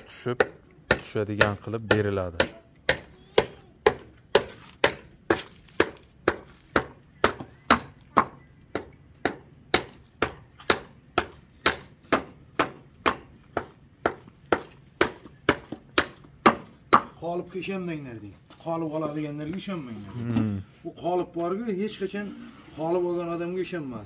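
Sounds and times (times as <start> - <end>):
tool chopping wood: 0.0 - 17.2.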